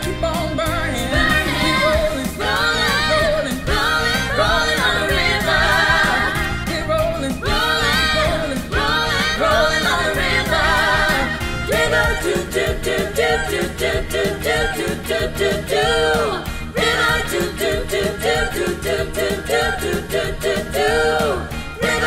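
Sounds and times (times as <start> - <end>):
soul-rock band playing: 0.0 - 12.5
women singing together: 0.4 - 22.0.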